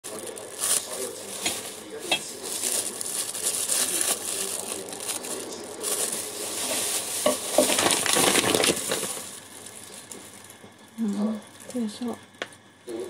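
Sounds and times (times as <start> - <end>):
plastic bag rustling and crinkling: 0.0 - 12.1.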